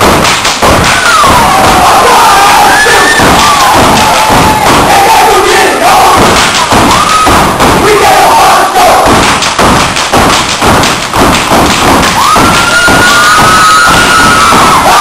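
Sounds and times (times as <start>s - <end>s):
stomps on wooden stage: 0.0s - 5.2s, 5.9s - 8.1s, 8.8s - 15.0s
people clapping: 0.0s - 15.0s
audience shouting: 0.7s - 9.2s, 12.0s - 15.0s.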